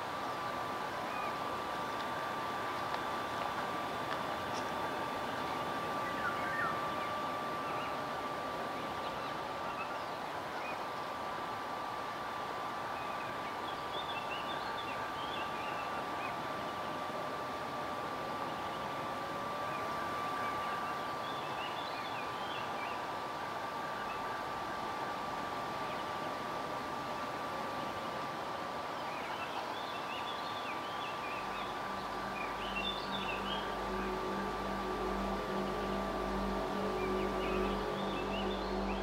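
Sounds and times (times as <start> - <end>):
low wavering tone: 0.0 - 39.0
steady hiss: 0.0 - 39.0
small birds chirping: 12.6 - 39.0
high held tone: 31.4 - 39.0.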